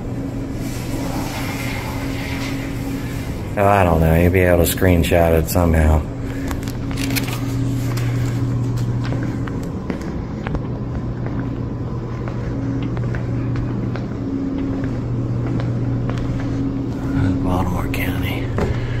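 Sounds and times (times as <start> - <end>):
low machine hum: 0.0 - 19.0
footsteps on tile floor: 6.3 - 17.2.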